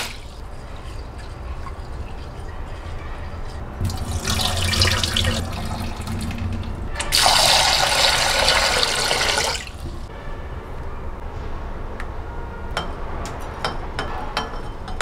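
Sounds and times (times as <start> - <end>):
rinse water splashing into sink: 0.0 - 2.9, 3.5 - 9.8
kitchen tap running into bowl: 0.0 - 9.8.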